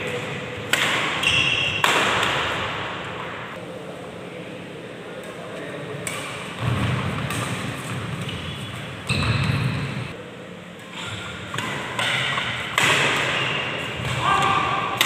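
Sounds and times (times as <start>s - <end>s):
rackets striking shuttlecock: 0.0s - 3.0s, 11.5s - 15.0s.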